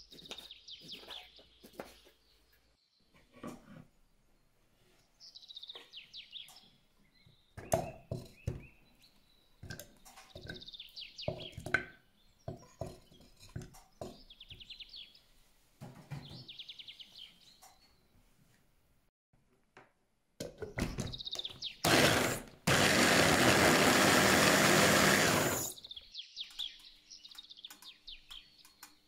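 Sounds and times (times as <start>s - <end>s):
small bird chirping in trills: 5.2s - 15.3s, 25.7s - 29.0s.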